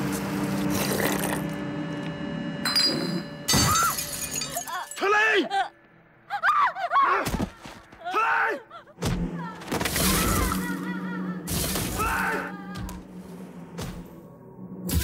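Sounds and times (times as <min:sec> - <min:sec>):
low music drone: 0:00.0 - 0:04.5, 0:08.9 - 0:15.0
people yelling: 0:06.3 - 0:08.8, 0:11.9 - 0:13.0.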